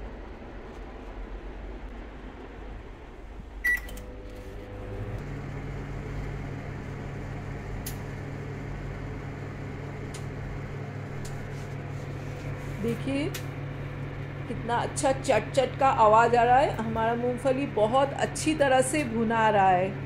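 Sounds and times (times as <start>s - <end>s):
microwave oven humming: 3.2s - 20.0s
microwave start beep: 3.6s - 4.1s.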